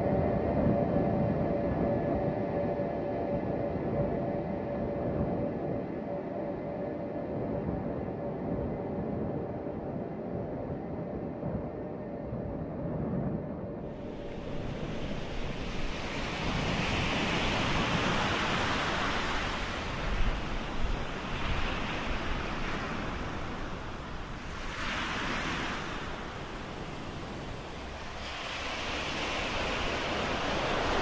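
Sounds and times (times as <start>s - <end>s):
wind: 0.0s - 31.0s
sea waves washing: 14.0s - 31.0s.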